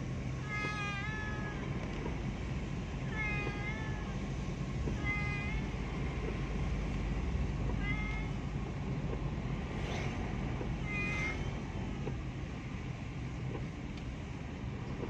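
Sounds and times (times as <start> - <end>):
car driving rumble: 0.0 - 15.0
cat meowing: 0.4 - 1.7, 3.0 - 4.2, 5.0 - 5.7, 7.7 - 8.4, 10.8 - 11.6.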